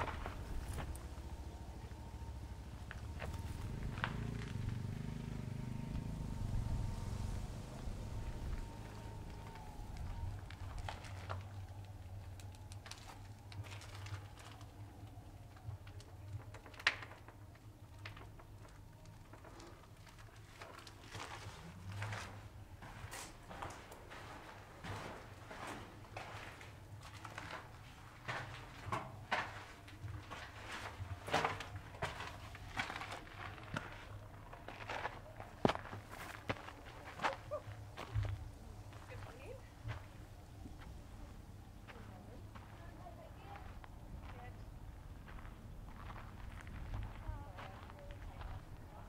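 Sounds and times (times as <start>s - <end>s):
footsteps crunching on gravel: 0.0s - 1.4s, 19.4s - 41.0s, 41.8s - 49.0s
low hum: 0.0s - 16.2s.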